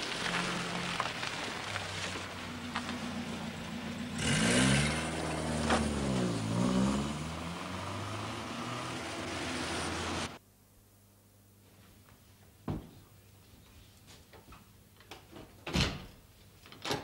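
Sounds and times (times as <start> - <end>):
car engine: 0.0 - 10.4
rain hissing: 0.0 - 10.4.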